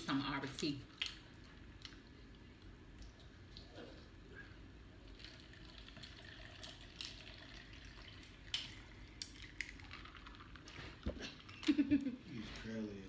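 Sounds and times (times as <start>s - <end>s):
drink trickling into cup: 5.0s - 11.7s.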